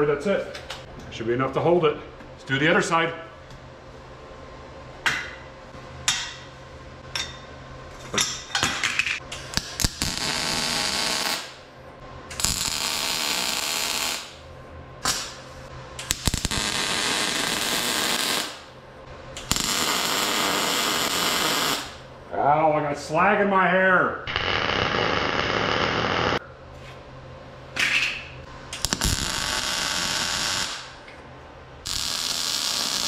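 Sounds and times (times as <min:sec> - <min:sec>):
welding arc buzzing: 0:09.5 - 0:11.6, 0:12.3 - 0:14.4, 0:15.0 - 0:22.1, 0:24.3 - 0:26.4, 0:28.5 - 0:31.1, 0:31.8 - 0:33.0.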